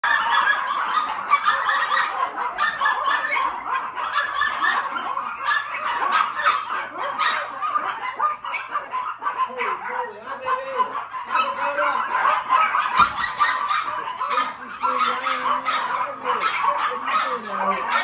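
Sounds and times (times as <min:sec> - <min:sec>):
small dogs barking and yipping: 0:00.0 - 0:18.0.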